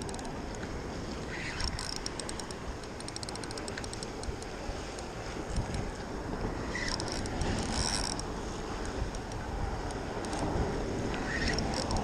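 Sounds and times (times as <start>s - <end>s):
wind buffeting microphone: 0.0s - 12.0s
hand rubbing and clicking camera: 1.4s - 6.0s, 6.8s - 10.5s, 11.4s - 12.0s.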